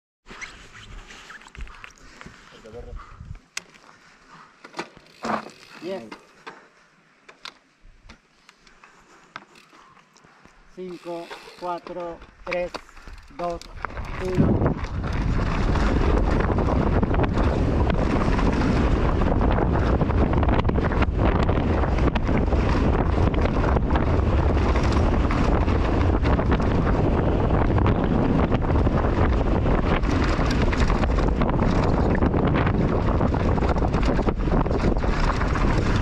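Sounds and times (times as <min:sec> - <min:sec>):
wind rushing over microphone: 0:02.6 - 0:03.4, 0:13.4 - 0:36.0
bike knocking and rattling over stones: 0:04.6 - 0:06.7, 0:10.8 - 0:36.0.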